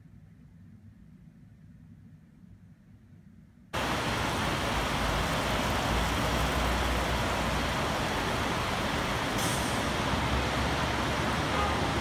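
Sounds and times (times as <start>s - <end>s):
passing vehicles rumble: 3.8s - 12.0s
rain: 3.8s - 12.0s.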